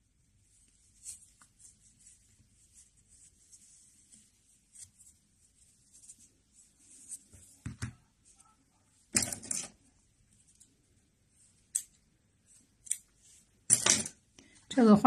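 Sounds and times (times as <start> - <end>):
yarn rustling: 0.1 - 11.7.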